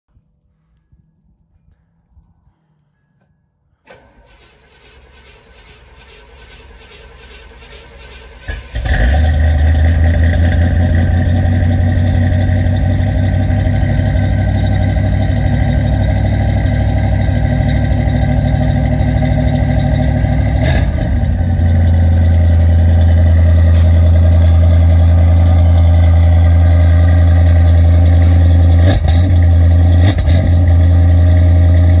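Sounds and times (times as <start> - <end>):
car engine idling: 3.8 - 32.0
starter motor cranking: 3.9 - 9.3.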